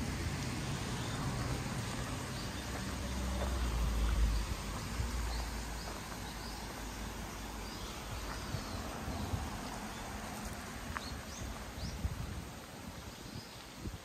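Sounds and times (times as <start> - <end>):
river water rushing: 0.0 - 14.0
wind on microphone: 10.8 - 14.0.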